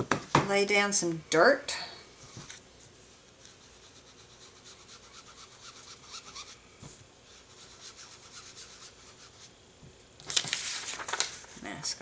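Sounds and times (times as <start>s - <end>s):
sponge dauber rubbing on cardstock: 3.4s - 6.6s, 7.3s - 9.5s.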